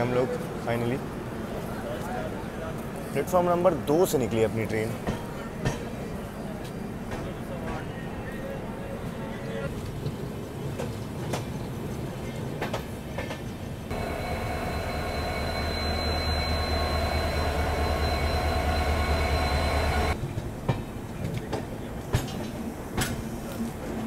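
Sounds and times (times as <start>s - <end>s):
train rumble: 4.6s - 24.0s
thin high tone: 13.9s - 20.2s.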